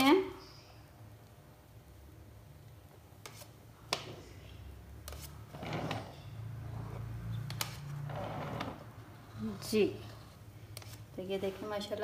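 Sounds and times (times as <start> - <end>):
soft scraping of cream: 3.2 - 3.6, 5.0 - 11.8.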